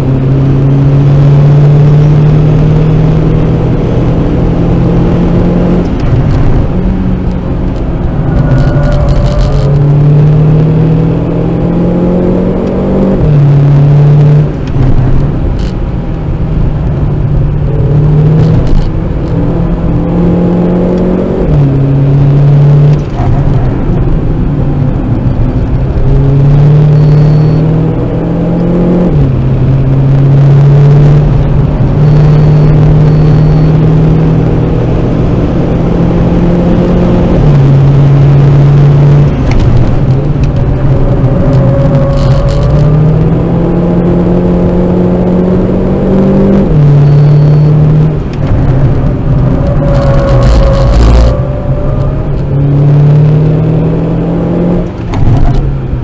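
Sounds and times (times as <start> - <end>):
car engine accelerating: 0.0 - 56.0
road and wind noise: 0.0 - 56.0.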